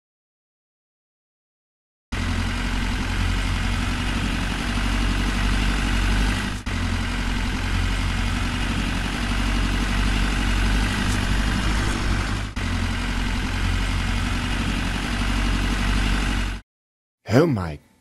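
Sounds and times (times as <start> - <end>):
tractor engine running: 2.1 - 16.6.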